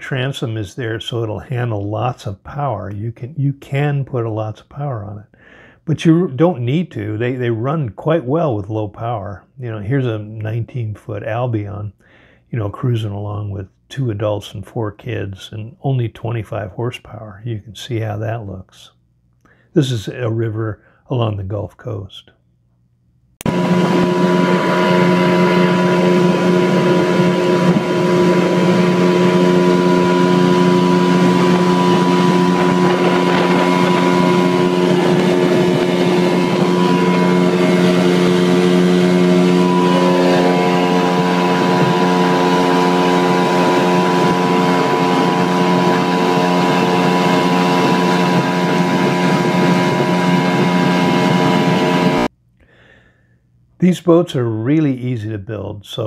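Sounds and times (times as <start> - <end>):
outboard motor running: 23.4 - 52.3
water rushing: 23.5 - 52.3.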